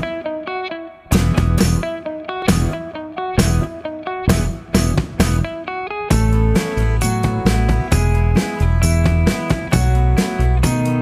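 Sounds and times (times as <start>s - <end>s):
music with steady beat: 0.0s - 11.0s
deep bass: 1.1s - 1.9s, 2.5s - 2.8s, 3.4s - 3.7s, 4.3s - 5.5s, 6.1s - 11.0s.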